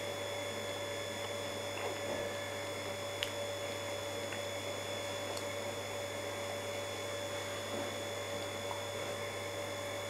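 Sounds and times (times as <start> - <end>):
electrical hum: 0.0 - 10.0
thin high whine: 0.0 - 10.0.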